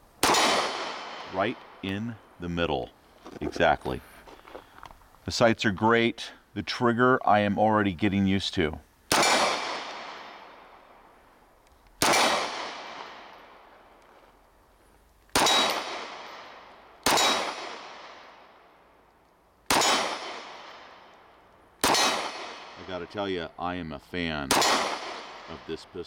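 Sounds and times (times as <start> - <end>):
gunshot echo off rock: 0.2 - 1.7, 9.1 - 10.5, 12.0 - 13.5, 15.4 - 18.4, 19.7 - 21.0, 21.8 - 23.0, 24.5 - 25.8
pistol shots: 0.2 - 2.0, 9.1 - 10.9, 12.0 - 13.7, 15.3 - 18.6, 19.6 - 23.1, 24.5 - 26.0.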